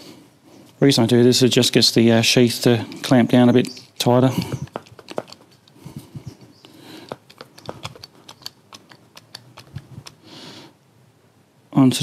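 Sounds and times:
crimping tool clicks and taps: 4.4 - 5.8, 7.1 - 10.2.

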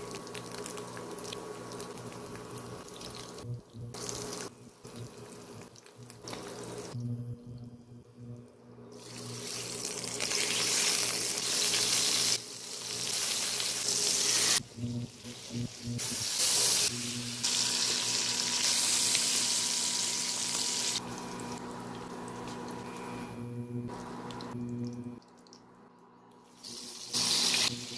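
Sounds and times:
meat sizzling in hot oil: 9.0 - 21.1, 26.6 - 27.9.

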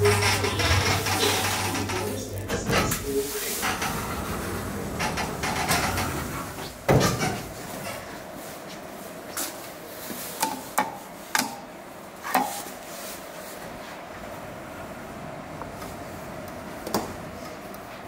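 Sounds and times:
steady hum: 0.0 - 9.9.

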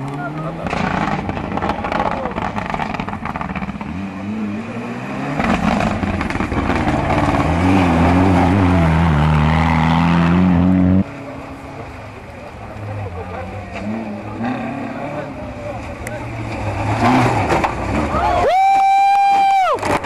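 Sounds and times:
car engine revving hard: 0.2 - 11.1, 16.5 - 18.2.

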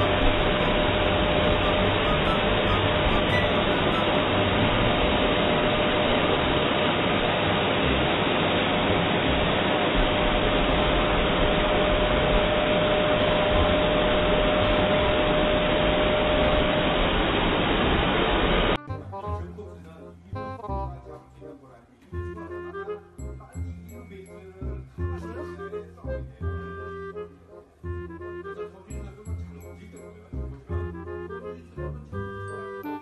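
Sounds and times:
hair dryer blowing: 0.0 - 18.8.

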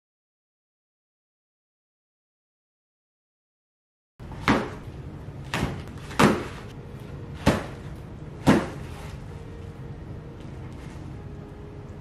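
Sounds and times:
parcels thumping on wooden table: 5.5 - 6.6.

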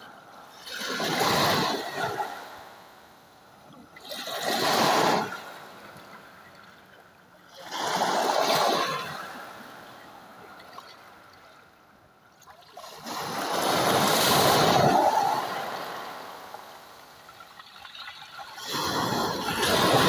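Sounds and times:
waves breaking on pebble beach: 0.5 - 2.8, 4.0 - 6.3, 7.5 - 11.1, 12.6 - 20.0.

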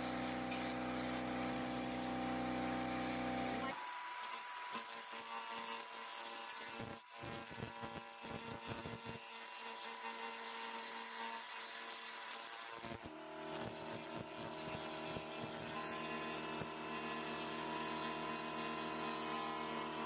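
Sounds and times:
machine hum: 0.0 - 3.8.

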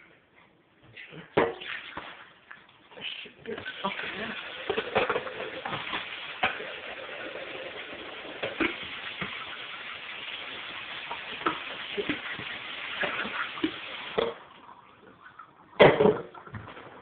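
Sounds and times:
pancake sizzling in a pan: 3.8 - 14.2.

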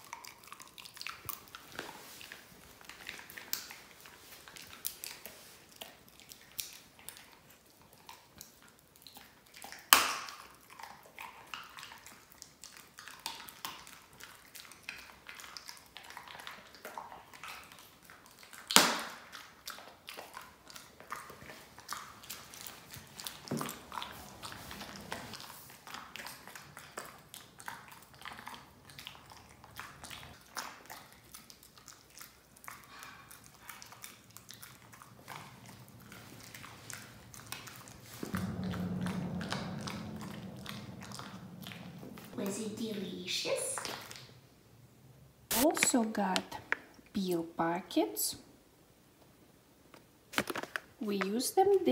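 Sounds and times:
low hum: 22.9 - 26.6, 34.6 - 45.5.

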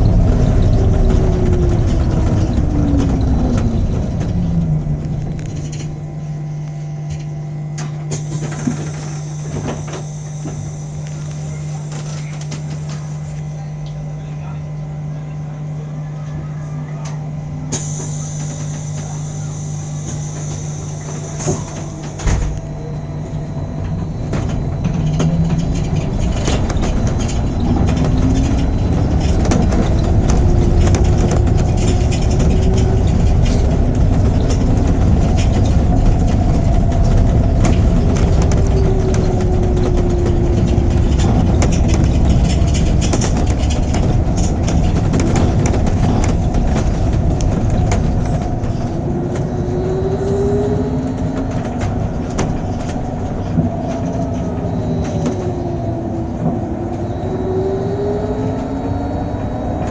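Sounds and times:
bus low rumble: 0.0 - 59.9
electric bus hum: 0.0 - 59.9
faint whine: 0.0 - 59.9.

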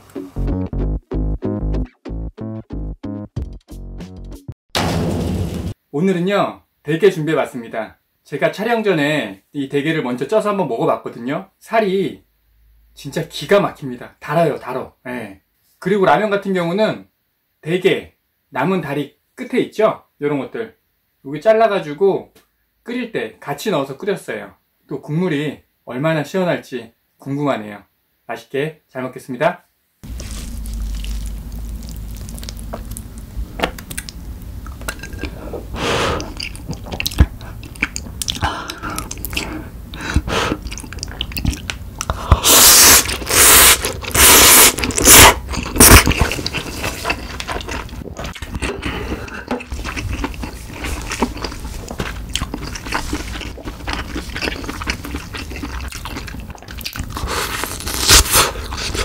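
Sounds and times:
noodle slurps: 30.0 - 33.0, 33.8 - 59.0
chewing and wet mouth sounds: 30.0 - 59.0.

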